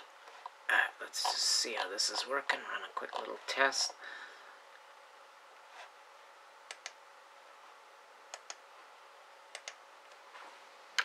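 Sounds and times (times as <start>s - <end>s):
faint steady hum: 0.0s - 11.0s
computer mouse clicking: 6.7s - 7.0s, 8.3s - 8.6s, 9.5s - 9.8s.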